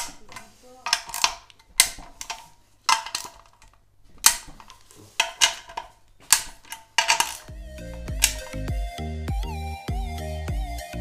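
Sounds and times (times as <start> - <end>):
metallic taps on metal: 0.0 - 8.8.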